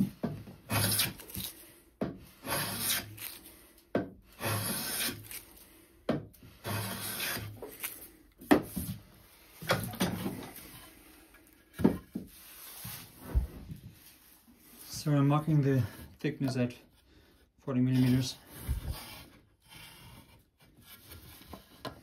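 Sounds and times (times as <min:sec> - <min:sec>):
hand plane hissing along wood: 0:00.7 - 0:03.7, 0:04.3 - 0:05.8, 0:06.4 - 0:08.1, 0:18.1 - 0:20.2
wooden knocks and scrapes: 0:08.4 - 0:11.0, 0:11.7 - 0:14.2, 0:17.9 - 0:22.0.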